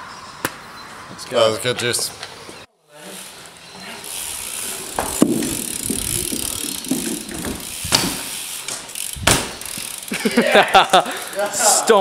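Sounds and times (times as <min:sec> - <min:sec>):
bike tyres rattling on paving: 0:03.2 - 0:12.0
sharp knocks: 0:05.0 - 0:09.6.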